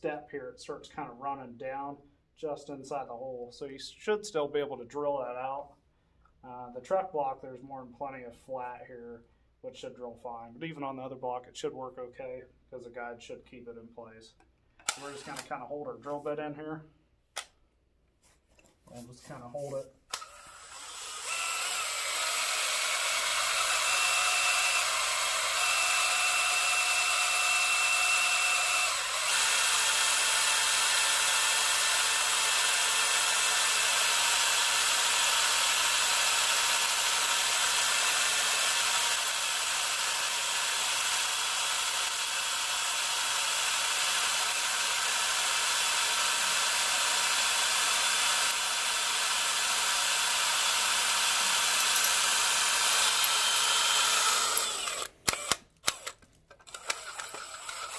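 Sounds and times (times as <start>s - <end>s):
cordless drill boring into metal: 14.8s - 15.6s, 20.1s - 57.9s.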